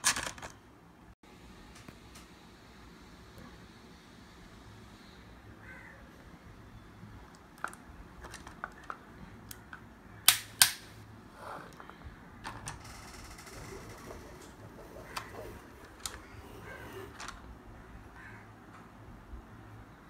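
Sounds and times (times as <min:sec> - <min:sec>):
plastic toys clicking and knocking: 0:00.0 - 0:00.6, 0:07.3 - 0:10.4, 0:12.4 - 0:17.5.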